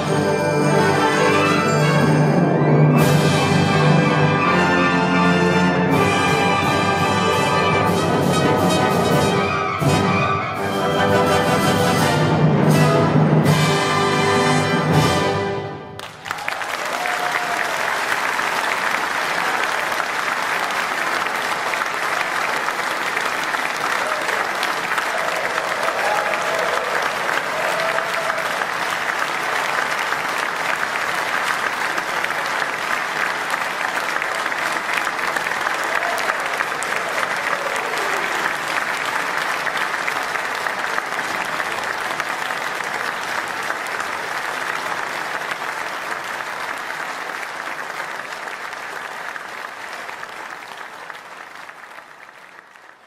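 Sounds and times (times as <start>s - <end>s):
audience applauding: 13.7s - 53.0s.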